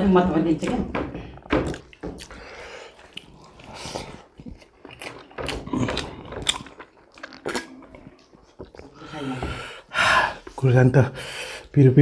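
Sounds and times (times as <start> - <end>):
close chewing and biting food: 1.3 - 9.6
wet mouth sounds: 1.4 - 9.1.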